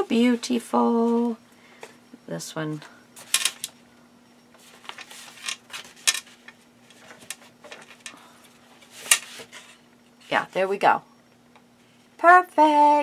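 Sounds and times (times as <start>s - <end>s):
paper rustling and sliding: 4.6s - 7.5s, 8.8s - 9.8s.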